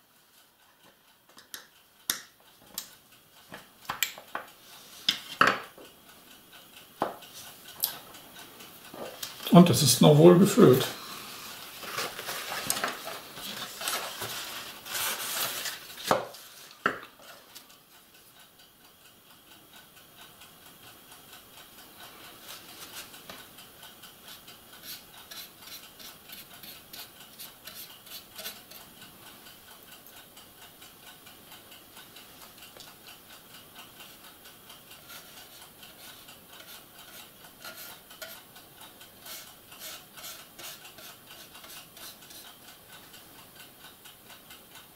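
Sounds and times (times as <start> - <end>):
rustling and handling noise: 11.2 - 17.8
paintbrush scratching on plastic: 24.8 - 28.8, 35.0 - 38.4, 39.2 - 42.4.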